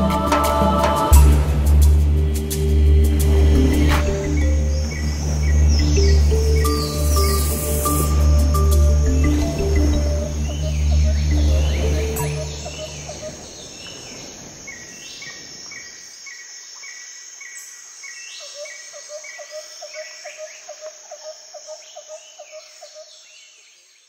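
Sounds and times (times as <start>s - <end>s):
background music: 0.0s - 13.4s
birds calling: 0.0s - 23.9s
high insect hum: 0.0s - 24.0s.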